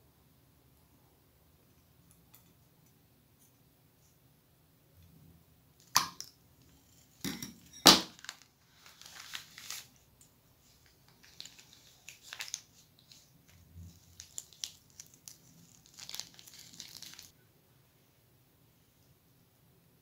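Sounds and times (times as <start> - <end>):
plastic crinkling: 8.0 - 17.3.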